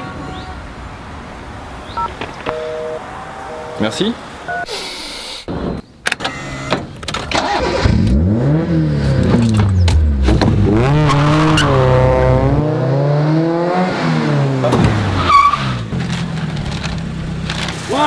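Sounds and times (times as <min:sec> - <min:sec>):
car engine revving: 0:07.4 - 0:15.9.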